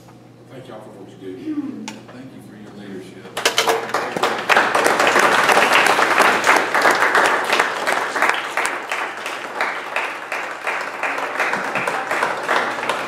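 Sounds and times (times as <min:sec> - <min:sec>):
crowd applauding: 0:03.4 - 0:13.0.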